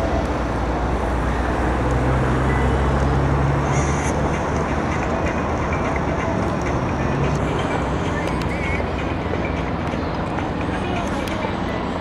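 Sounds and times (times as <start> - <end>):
low engine drone: 0.0 - 12.0
outdoor noise: 0.0 - 12.0.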